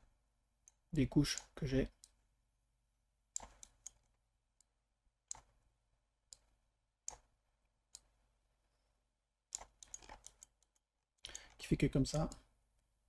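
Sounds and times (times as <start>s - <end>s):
computer mouse clicks: 0.6s - 2.2s, 3.3s - 5.6s, 6.3s - 7.3s, 7.9s - 8.2s, 9.5s - 12.5s.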